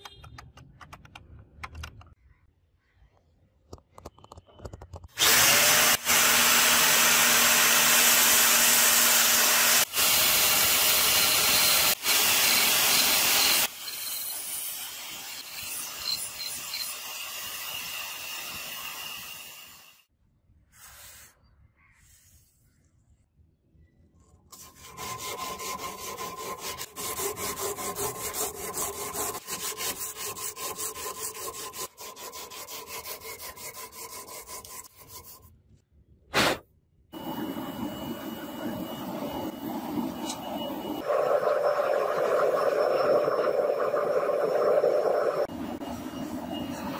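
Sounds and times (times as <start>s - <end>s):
angle grinder running: 5.2s - 14.4s
metal ground against abrasive belt: 24.6s - 35.4s.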